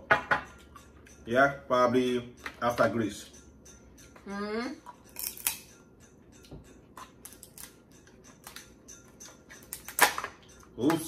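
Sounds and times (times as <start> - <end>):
crab shells cracking: 5.2 - 5.6.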